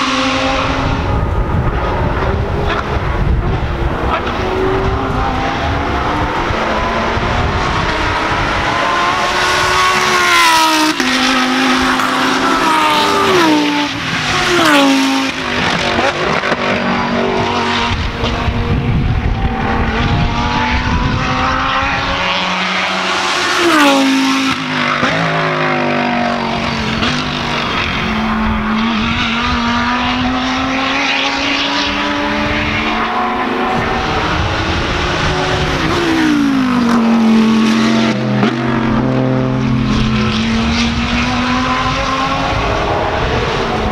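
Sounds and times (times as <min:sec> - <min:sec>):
race car engines passing: 0:00.0 - 0:43.9.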